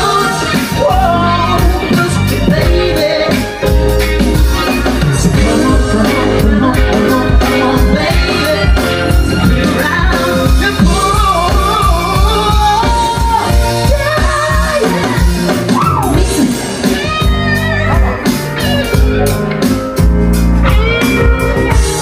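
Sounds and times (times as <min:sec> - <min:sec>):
person singing: 0:00.0 - 0:19.4, 0:20.7 - 0:22.0
live band playing: 0:00.0 - 0:22.0.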